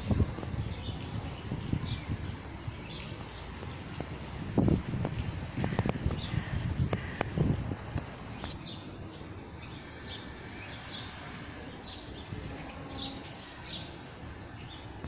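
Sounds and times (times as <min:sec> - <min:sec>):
small birds chirping: 0:05.1 - 0:15.0.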